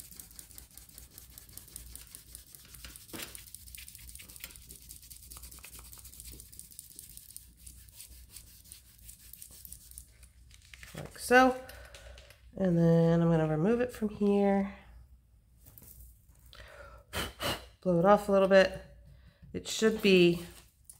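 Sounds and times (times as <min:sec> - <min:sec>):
fingers rubbing on card: 0:00.0 - 0:10.2.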